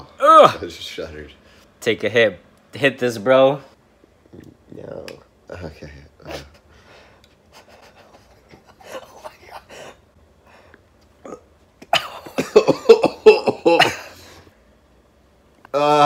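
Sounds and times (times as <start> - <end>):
man murmuring and breathing: 5.8 - 11.4.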